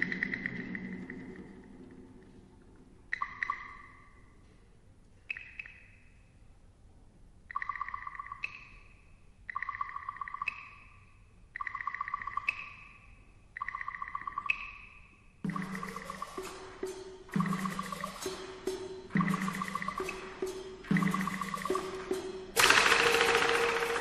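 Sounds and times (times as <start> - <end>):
small cymbals and gongs ringing: 15.4 - 24.0.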